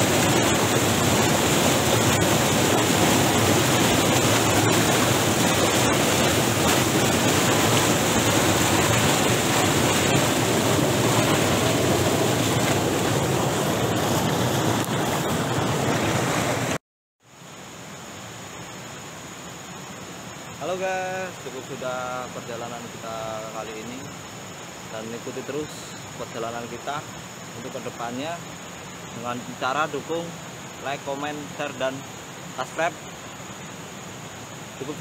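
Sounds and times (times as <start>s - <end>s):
river rapids rushing: 0.0s - 16.8s.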